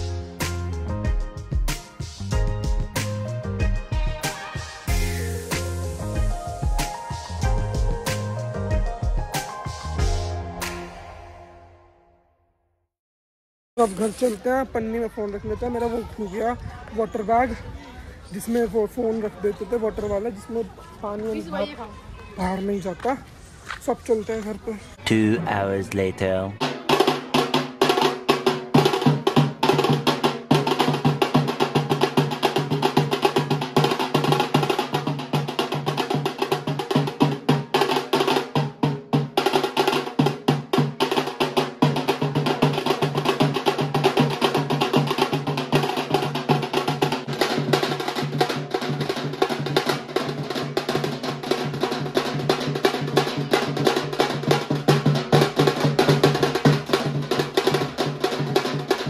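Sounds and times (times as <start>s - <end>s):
rapid drumming on steel drums: 26.6s - 59.0s.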